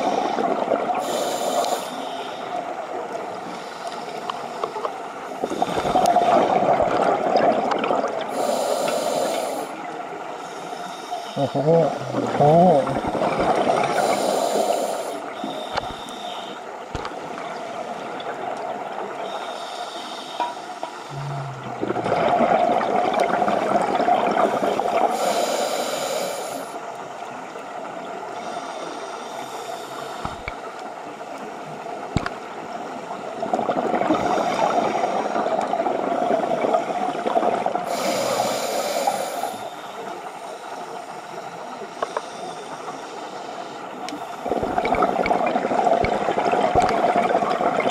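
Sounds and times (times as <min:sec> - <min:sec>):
regulator inhalation hiss: 0:01.0 - 0:02.6, 0:08.3 - 0:09.8, 0:13.9 - 0:16.6, 0:19.2 - 0:21.1, 0:24.4 - 0:26.8, 0:28.4 - 0:30.5, 0:37.9 - 0:40.9
gurgling exhaust bubbles: 0:21.1 - 0:25.0.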